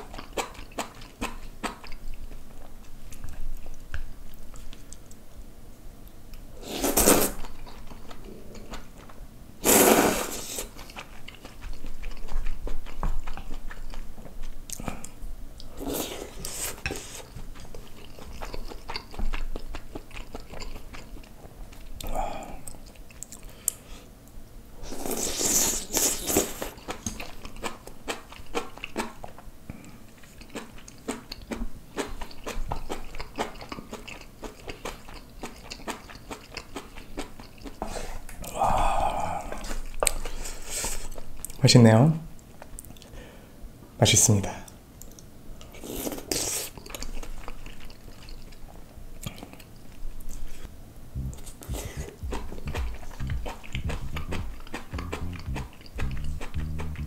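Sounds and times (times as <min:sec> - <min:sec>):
person chewing and crunching food: 0:00.0 - 0:05.4, 0:06.7 - 0:24.0, 0:24.8 - 0:41.6, 0:45.0 - 0:57.0
loud slurps: 0:06.6 - 0:07.4, 0:09.6 - 0:10.7.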